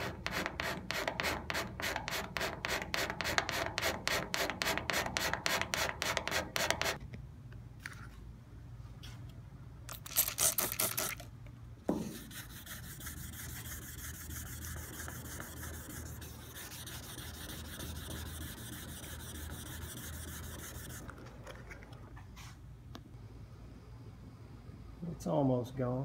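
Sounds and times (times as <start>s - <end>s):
hand rubbing on painted metal: 0.0s - 7.0s, 11.9s - 22.6s.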